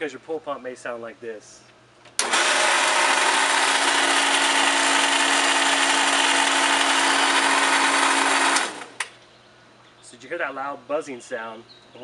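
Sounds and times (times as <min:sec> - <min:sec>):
pool pump motor buzzing: 0:02.2 - 0:09.2.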